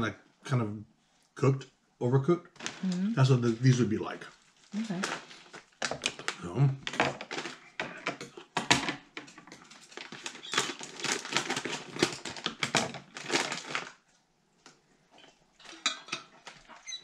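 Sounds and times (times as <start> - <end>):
packaging crinkling: 4.3 - 6.4, 7.0 - 7.6, 9.6 - 14.0.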